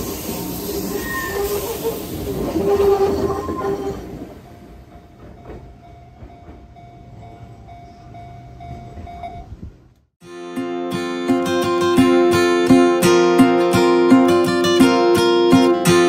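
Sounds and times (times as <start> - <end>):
train passing over crossing: 0.0 - 10.0
faint rail noise: 0.0 - 10.1
acoustic guitar music: 10.2 - 16.0.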